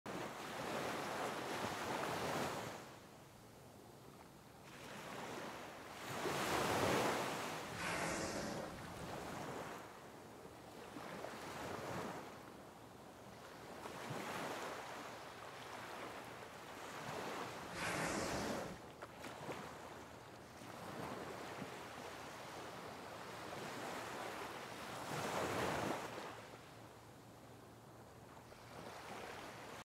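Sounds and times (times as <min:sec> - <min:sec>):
sea water washing: 0:06.1 - 0:10.0, 0:16.8 - 0:21.1
wind rushing over microphone: 0:07.7 - 0:09.0.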